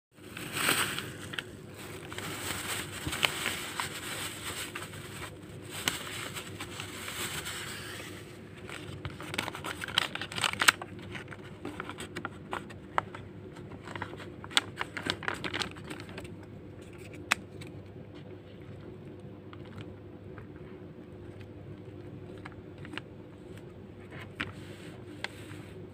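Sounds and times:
paper rustling and crinkling: 0.2 - 18.8, 21.2 - 25.8.

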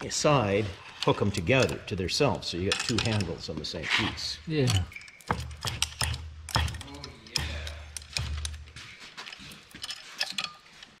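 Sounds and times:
metal chain clicking: 2.6 - 3.4, 4.5 - 11.0.

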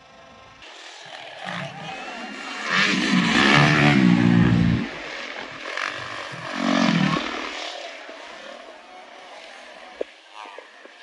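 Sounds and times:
motocross bike engine revving: 1.2 - 8.3.

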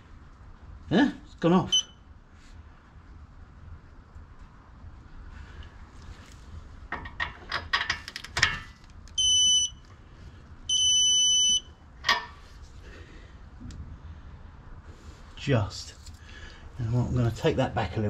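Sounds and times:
electronic beeps: 10.7 - 11.7.

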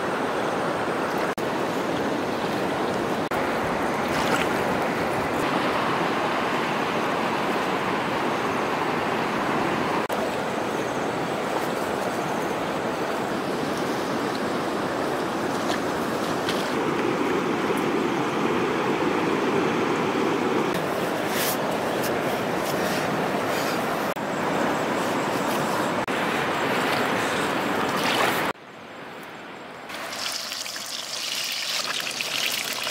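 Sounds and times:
stream water rushing: 0.0 - 29.0, 29.9 - 32.9.

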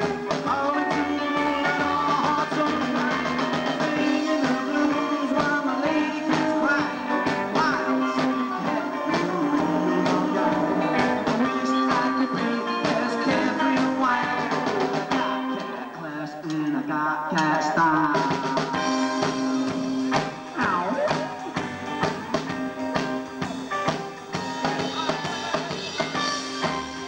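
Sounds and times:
man singing: 0.0 - 19.6
electric guitar: 0.0 - 27.0
upright double bass: 8.6 - 11.7
drum beat of sharp hits: 17.4 - 27.0.

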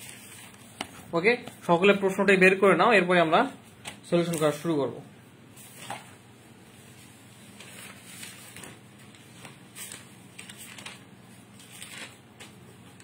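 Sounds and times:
paper page rustling: 0.0 - 1.6, 5.6 - 13.0.

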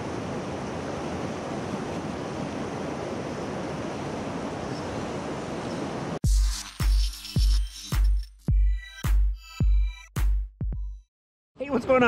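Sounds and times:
river water flowing: 0.0 - 6.2.

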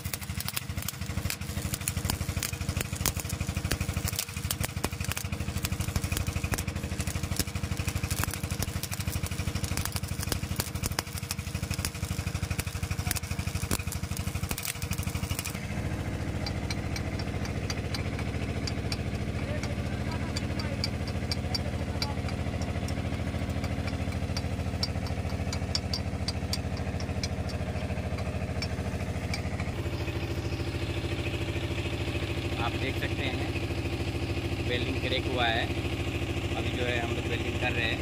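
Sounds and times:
light ticking: 0.0 - 29.7
arc welding crackle: 0.0 - 38.0
engine idling: 0.0 - 38.0.

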